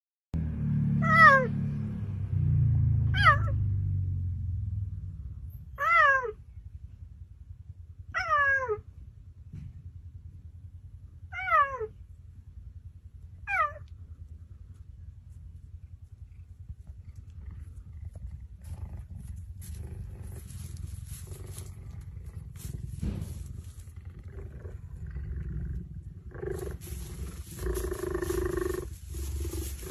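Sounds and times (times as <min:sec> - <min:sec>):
low rumble: 0:00.4 - 0:29.9
cheetah meow-like calls: 0:08.2 - 0:08.8, 0:11.3 - 0:12.0, 0:13.4 - 0:13.9.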